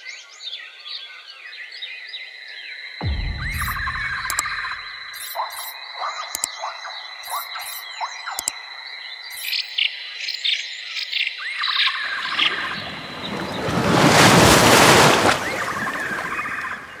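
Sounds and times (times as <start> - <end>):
loud rushing noise: 3.0 - 5.1
steady high tone: 3.0 - 5.2
small birds chirping: 3.1 - 13.7.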